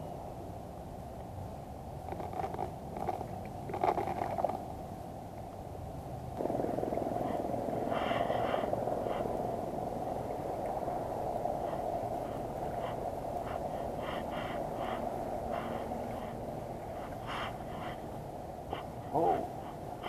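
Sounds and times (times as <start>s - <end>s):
water noise: 6.4s - 20.0s
wind rush: 6.4s - 20.0s.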